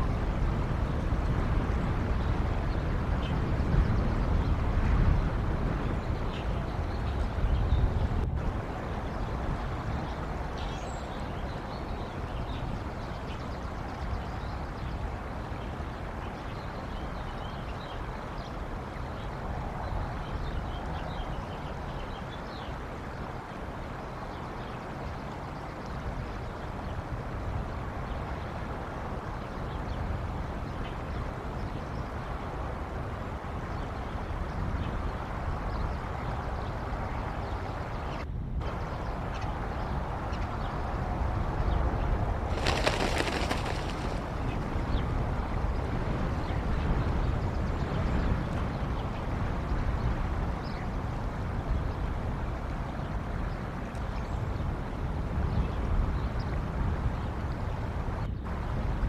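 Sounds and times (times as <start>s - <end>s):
low wind rumble: 0.0s - 59.0s
small birds chirping: 42.5s - 49.8s.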